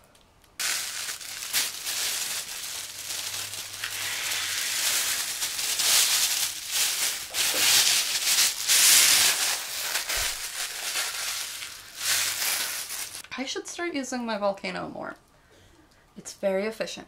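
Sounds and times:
plastic bag crinkling: 0.0 - 13.3.

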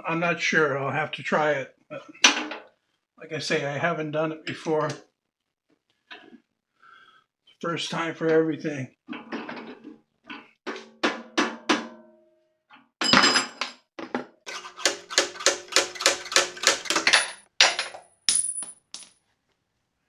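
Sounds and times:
hammer striking metal: 14.5 - 17.8.

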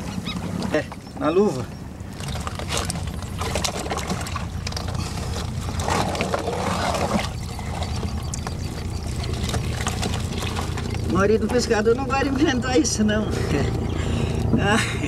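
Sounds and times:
low rumble: 1.8 - 15.0
mussel shells clicking and knocking: 2.2 - 11.7
water pouring: 9.0 - 11.2.

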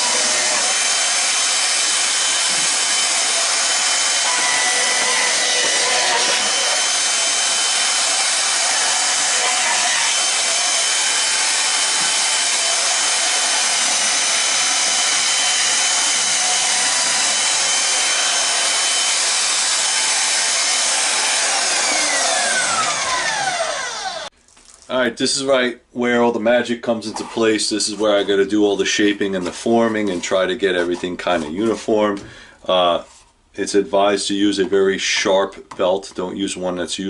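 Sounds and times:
band saw whining: 0.0 - 24.3
saw motor winding down: 0.0 - 24.3.

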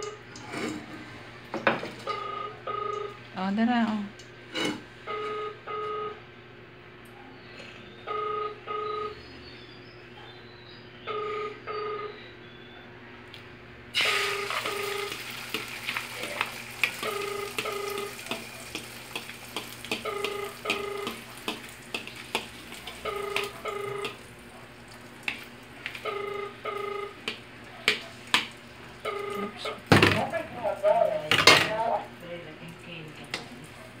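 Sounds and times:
egg sizzling in hot oil: 14.0 - 26.0
fork tapping a bowl: 18.3 - 24.2, 27.2 - 28.5.

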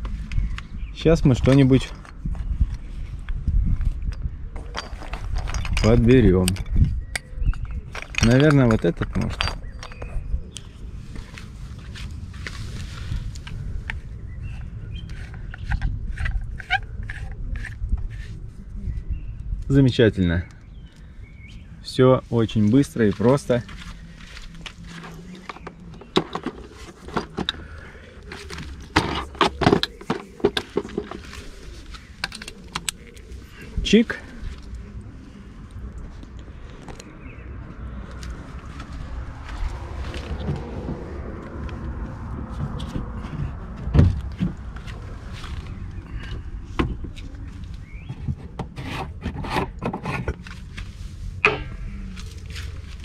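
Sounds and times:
steady low rumble: 0.0 - 48.5, 50.3 - 53.0
clicks and knocks of equipment: 4.6 - 10.1, 23.1 - 27.6, 28.2 - 33.2.

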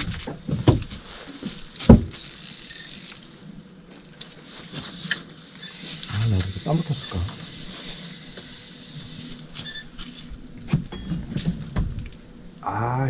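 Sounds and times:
fishing gear knocking and rattling: 1.8 - 3.2.

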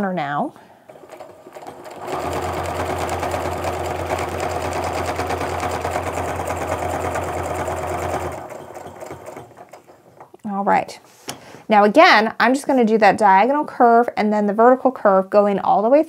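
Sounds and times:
sewing machine stitching: 0.8 - 10.5.

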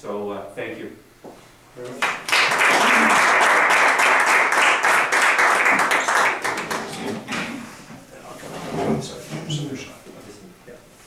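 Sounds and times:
people applauding: 2.0 - 7.3.

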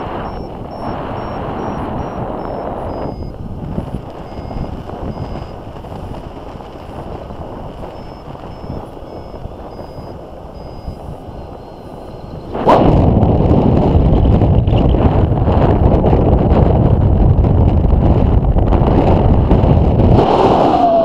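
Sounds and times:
wind rushing over microphone: 0.0 - 21.0
faint short high beeps: 0.2 - 3.4, 4.2 - 5.6, 7.9 - 12.5.

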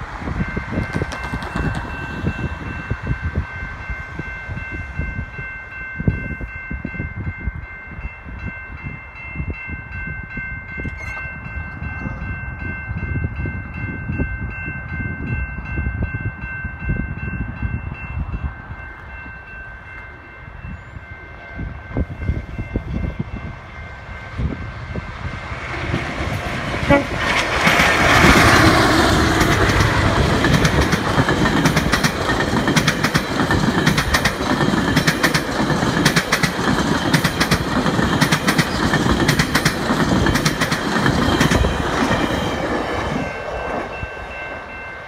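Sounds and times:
wind rumble on microphone: 0.0 - 19.4, 20.4 - 34.8
level crossing warning bell: 0.0 - 45.0.

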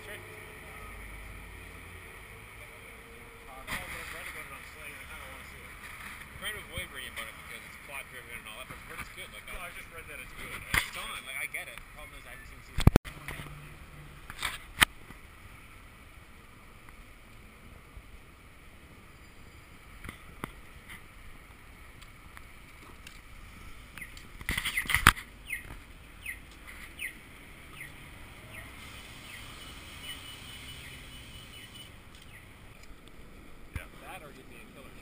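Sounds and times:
street noise hum: 0.0 - 35.0.

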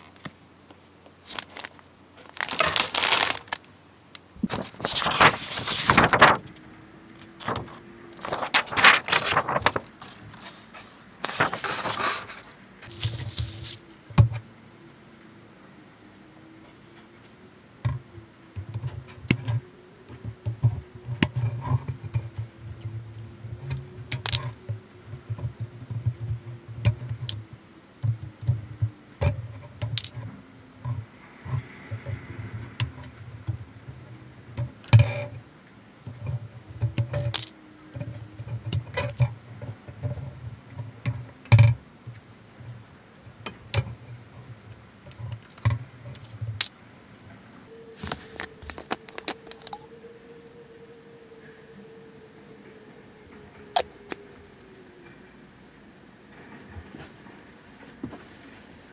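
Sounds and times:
nippers snipping plastic: 1.2 - 6.0
plastic rustling: 1.2 - 6.6, 7.3 - 14.0, 47.9 - 49.8.

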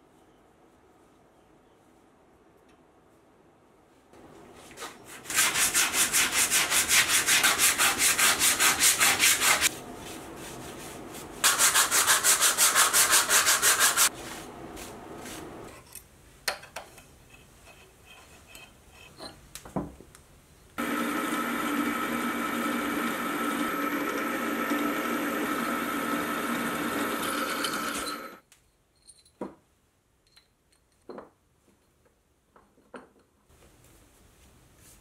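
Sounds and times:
abrasive pad scrubbing metal: 11.4 - 14.1
drill whine: 20.8 - 28.4
milling machine hum: 20.8 - 28.4.

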